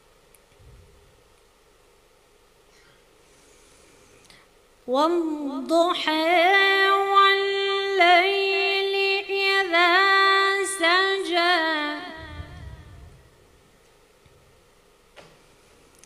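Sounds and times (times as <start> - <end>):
woman chanting recitation: 4.9 - 13.2.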